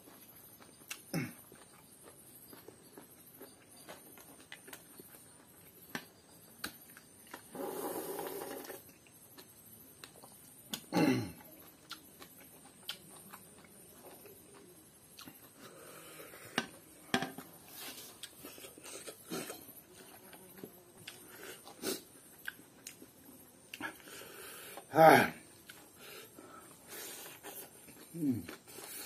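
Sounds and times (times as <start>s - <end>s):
chewing and lip smacks: 0.0s - 7.4s, 8.9s - 10.9s, 11.5s - 15.7s, 20.2s - 24.1s
slurp from a bowl: 7.5s - 8.8s.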